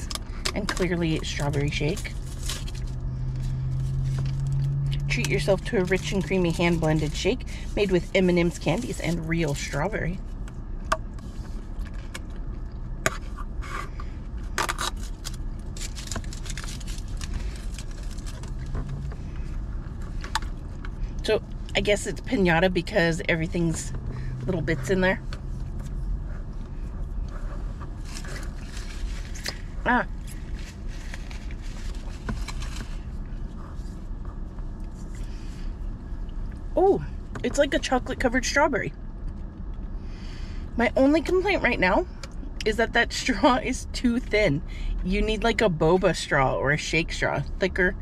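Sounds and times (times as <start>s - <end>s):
low hum inside car: 0.0s - 48.0s
straw wrapper crinkling: 0.1s - 5.1s, 14.6s - 19.0s, 28.0s - 33.1s.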